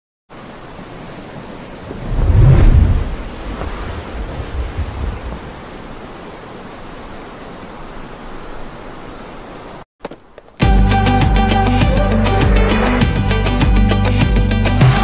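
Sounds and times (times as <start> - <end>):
rushing hiss with low rumble: 0.3 - 9.8.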